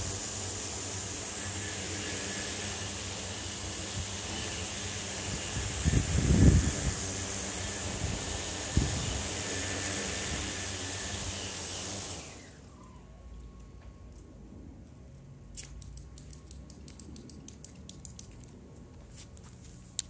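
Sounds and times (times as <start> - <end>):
drone rotor noise: 0.0 - 13.2
motors spinning down whine: 0.0 - 14.4.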